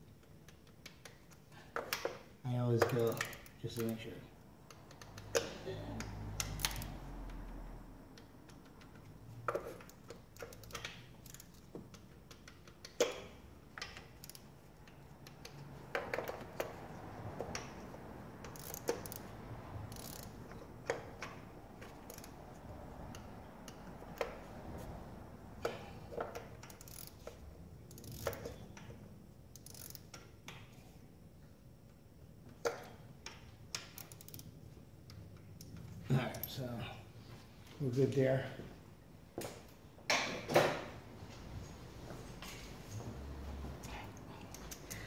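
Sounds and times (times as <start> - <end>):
hand ratchet clicking: 0.1 - 24.4, 25.6 - 30.7, 32.6 - 36.6, 43.9 - 45.0.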